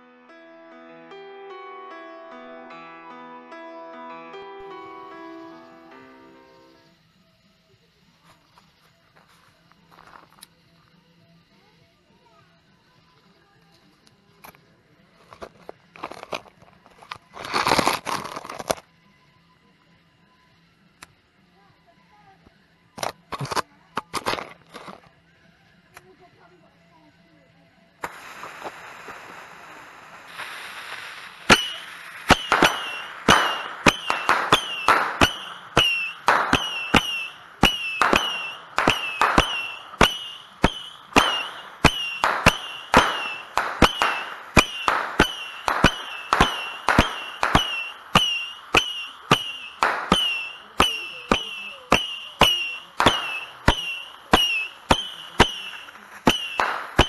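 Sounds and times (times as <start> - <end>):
firework pops and whistles: 6.6 - 12.1, 15.2 - 18.9, 28.0 - 57.0
fuse hissing: 28.0 - 42.0.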